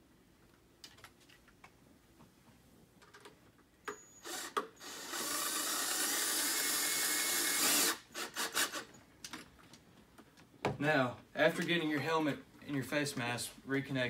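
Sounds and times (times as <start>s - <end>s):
cordless drill driving screw: 4.2s - 8.9s.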